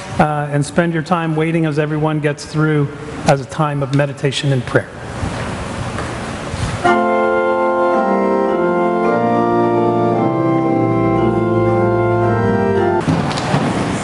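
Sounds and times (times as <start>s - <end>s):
organ playing sustained chords: 6.8s - 13.2s.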